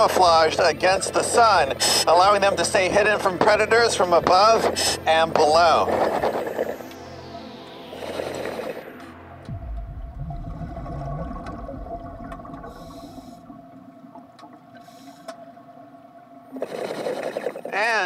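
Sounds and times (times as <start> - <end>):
low drone: 0.0 - 17.3
deep downward sweep: 6.5 - 13.5
low moaning rumble: 9.3 - 14.3.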